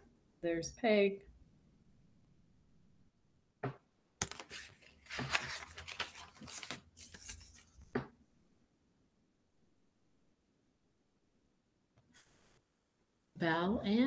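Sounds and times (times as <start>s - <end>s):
paper pages rustling: 4.2s - 7.9s
tap on book: 7.9s - 8.2s.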